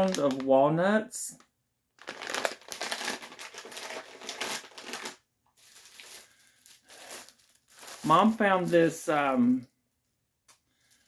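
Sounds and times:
plastic bag crinkling: 0.0 - 0.5, 2.0 - 9.4
plastic packaging rustling: 0.0 - 0.5, 2.0 - 9.2, 10.8 - 11.0.

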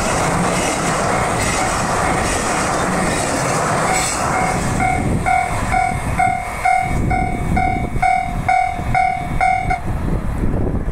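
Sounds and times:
freight train wagons rumbling: 0.0 - 10.9
level crossing warning bell: 3.9 - 9.9.

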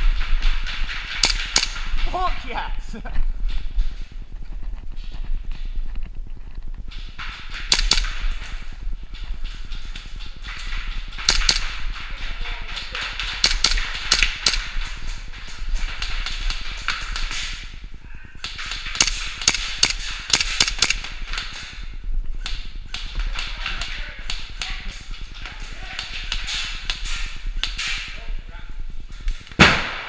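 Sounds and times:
airsoft guns firing: 0.0 - 2.5, 7.1 - 17.7, 18.4 - 21.8, 29.5 - 30.0.

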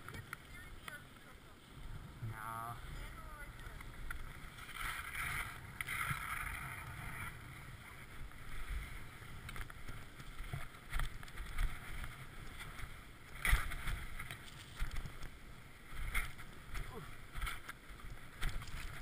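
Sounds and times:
wind rumbling on microphone: 0.0 - 19.0.

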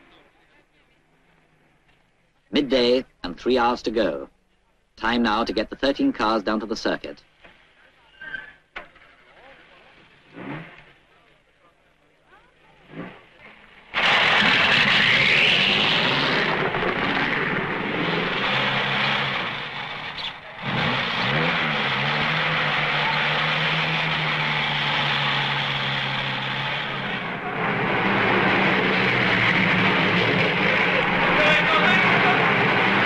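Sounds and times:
racing car engine running: 12.7 - 33.0.

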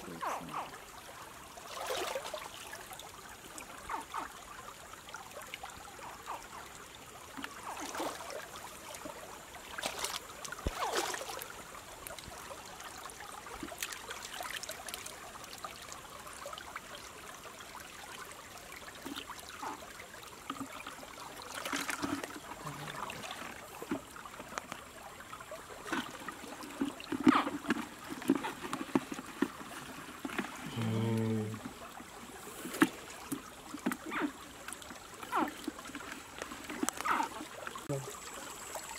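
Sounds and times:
stream trickling: 0.0 - 38.9
knocks and scrapes in plastic bucket: 26.8 - 31.8.

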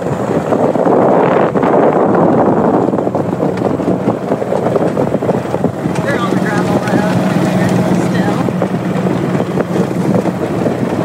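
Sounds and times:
vehicle engine and tyres: 0.0 - 11.0
wind buffeting microphone: 0.0 - 11.0.

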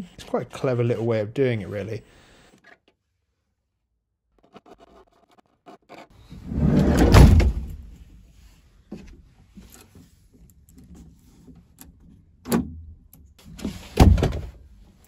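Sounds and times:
sliding van door rolling shut: 6.3 - 7.8
door and lock clunks: 6.6 - 7.8.

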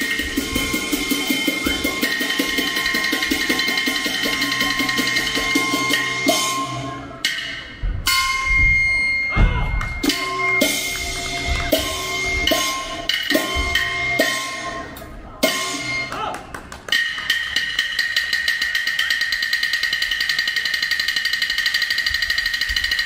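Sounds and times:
ringing metallic tone: 0.0 - 16.1
percussion strikes: 0.0 - 23.0.

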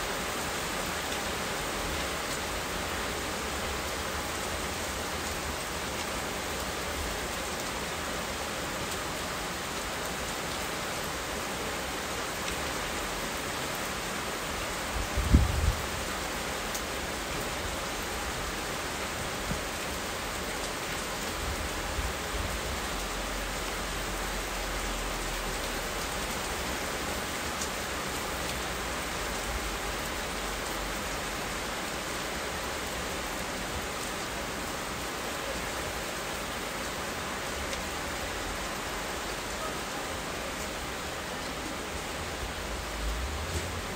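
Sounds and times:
steady rain: 0.0 - 43.9.

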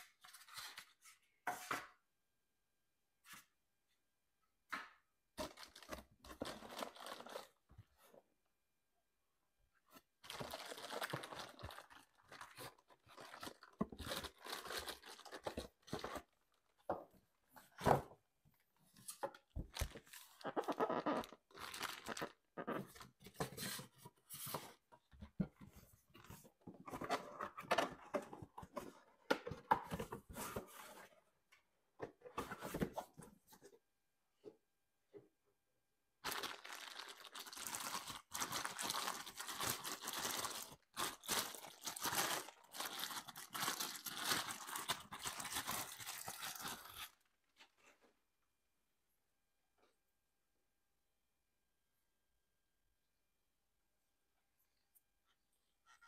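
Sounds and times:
plastic bag crinkling: 5.4 - 7.6, 10.2 - 16.0, 19.6 - 22.5, 36.2 - 47.3.

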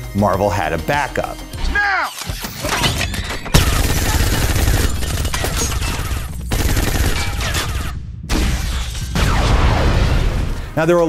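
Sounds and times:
rapid automatic gunfire: 3.5 - 8.0.

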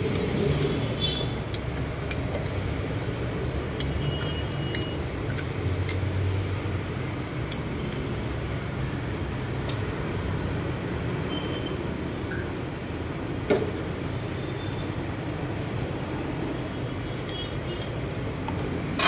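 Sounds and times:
metallic ringing pings: 3.7 - 5.0.

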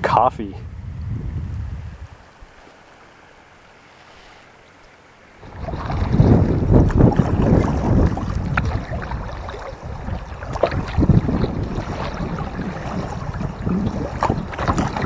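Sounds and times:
wind buffeting microphone: 0.0 - 2.6, 5.4 - 15.0
faint steady hush: 0.1 - 5.4
kayak paddle splashes: 2.4 - 15.0.

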